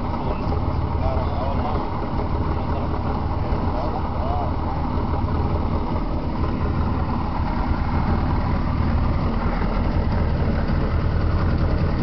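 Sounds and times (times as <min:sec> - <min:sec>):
boat engine rumbling: 0:00.0 - 0:12.0.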